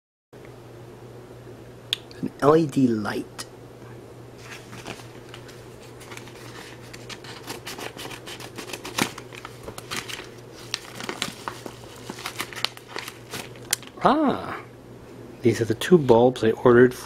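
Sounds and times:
packaging crinkling: 4.4s - 14.0s
scissors snipping envelope: 6.9s - 13.8s.

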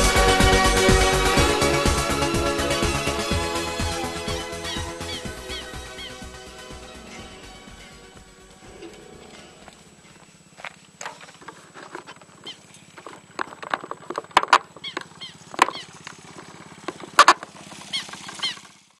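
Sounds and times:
high falling chirps: 0.0s - 11.4s
faint steady hum: 3.5s - 17.4s
knocks and scrapes of handling: 8.6s - 17.5s.

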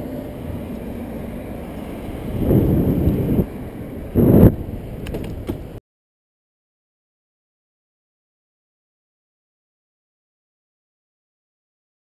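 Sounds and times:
passing car traffic: 0.0s - 5.8s
wind buffeting microphone: 0.0s - 5.8s.

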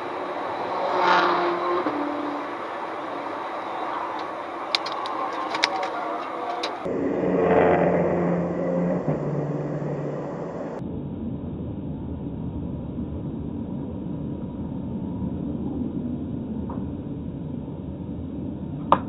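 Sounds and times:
sports car engine overtaking: 0.0s - 10.8s
car engine and road noise drone: 0.0s - 19.0s.

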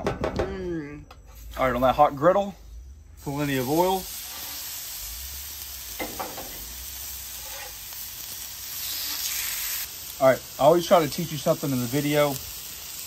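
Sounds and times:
chicken sizzling on griddle: 3.2s - 13.0s.

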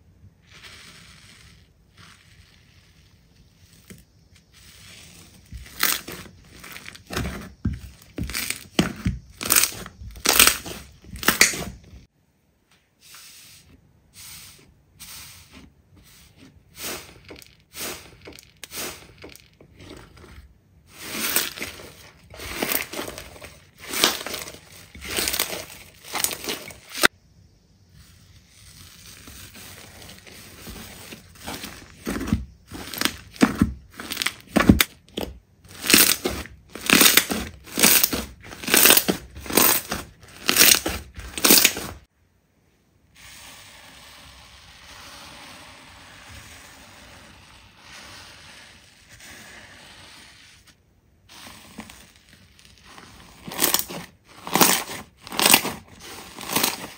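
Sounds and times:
slime squishing: 0.4s - 12.1s, 16.1s - 27.1s, 28.0s - 42.1s, 51.3s - 56.9s.

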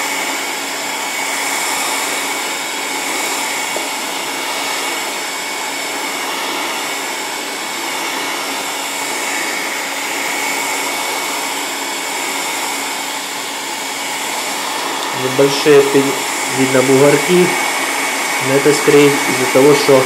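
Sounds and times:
heat gun blowing air: 0.0s - 20.0s.

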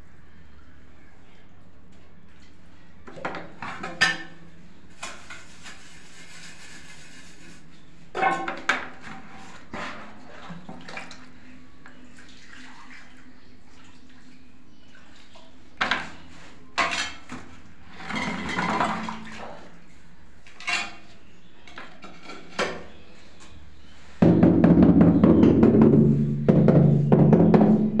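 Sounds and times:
tiles scraping and clinking: 3.1s - 10.6s, 15.8s - 19.7s, 20.5s - 23.0s.

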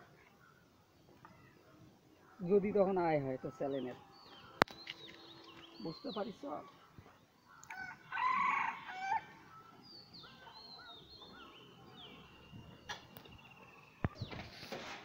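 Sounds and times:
small birds chirping and whistling: 3.6s - 7.8s, 9.4s - 14.8s
rooster crowing: 7.7s - 9.4s.

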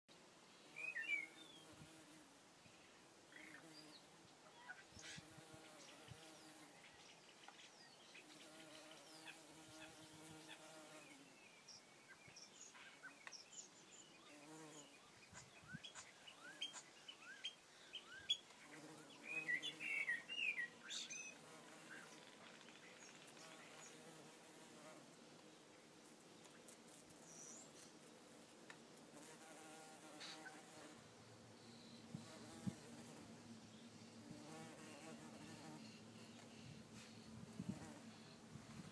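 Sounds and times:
bumblebees buzzing: 8.3s - 11.2s, 14.3s - 14.9s, 18.7s - 20.0s, 32.0s - 33.4s, 34.1s - 36.1s
birds chirping and singing: 11.7s - 21.3s.

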